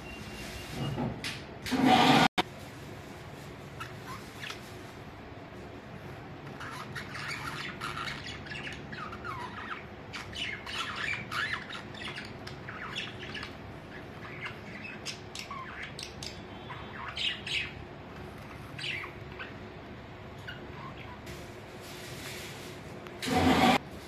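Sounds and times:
budgerigars chirping and squawking: 6.5 - 17.8, 18.6 - 19.6, 20.4 - 21.3.

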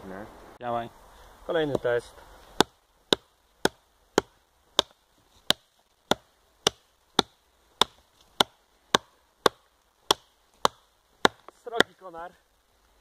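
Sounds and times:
hatchet chopping wood: 2.5 - 12.0.

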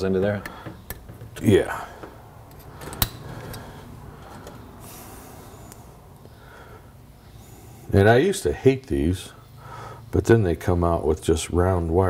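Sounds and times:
faint metal handling: 0.0 - 4.8
steady low hum: 0.0 - 12.0.

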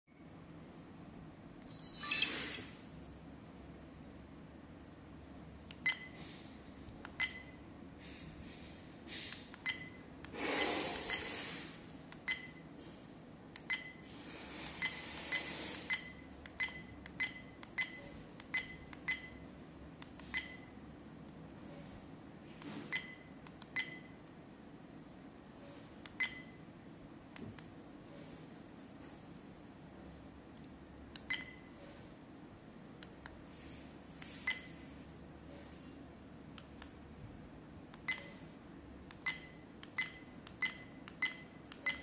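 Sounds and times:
short button beeps: 1.7 - 2.8.

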